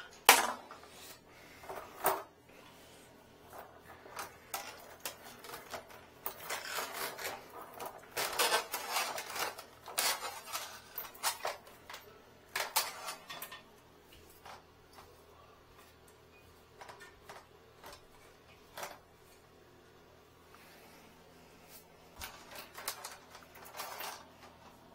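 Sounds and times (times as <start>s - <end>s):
cables clicking and clinking in case: 3.5s - 15.1s, 16.8s - 19.1s, 22.2s - 24.9s.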